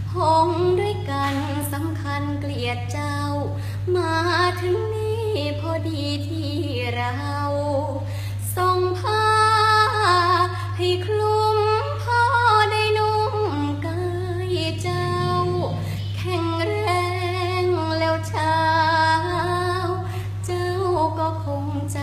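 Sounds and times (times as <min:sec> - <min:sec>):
girl singing unaccompanied: 0:00.0 - 0:22.0
steady low hum: 0:00.0 - 0:22.0.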